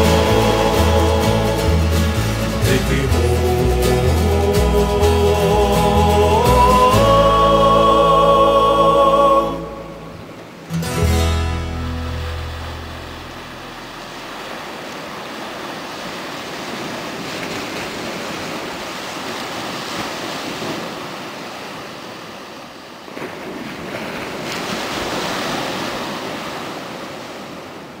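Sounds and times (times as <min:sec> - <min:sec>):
small waves breaking on beach: 0:11.8 - 0:28.0.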